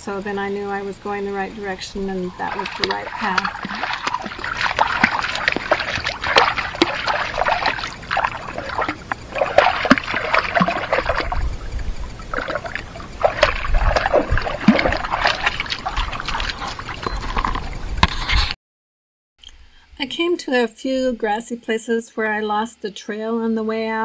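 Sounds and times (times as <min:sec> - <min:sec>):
stream trickling over stones: 0:02.3 - 0:17.7
dog splashing through water: 0:02.4 - 0:17.5.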